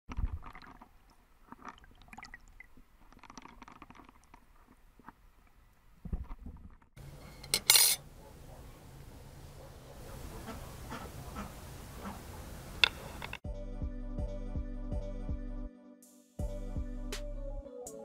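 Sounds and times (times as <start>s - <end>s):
faint clicks and pops: 0.1s - 6.9s
water sound: 0.1s - 6.9s.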